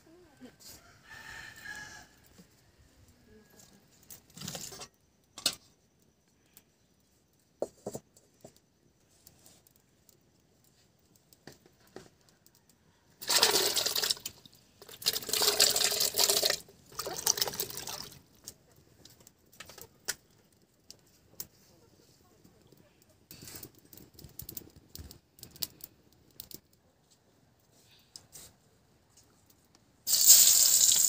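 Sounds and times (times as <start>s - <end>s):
food pieces splashing into water: 13.2s - 18.2s, 30.1s - 31.0s.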